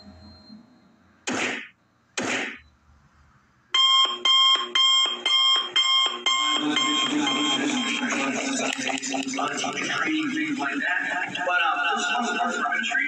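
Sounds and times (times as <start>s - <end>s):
electronic alarm beeping: 0.0s - 1.0s, 3.8s - 8.4s.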